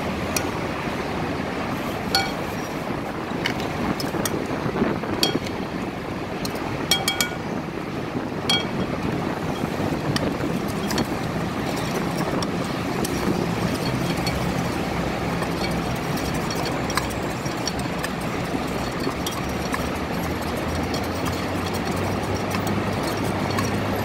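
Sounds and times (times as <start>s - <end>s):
traffic rumble on busy road: 0.0s - 24.0s.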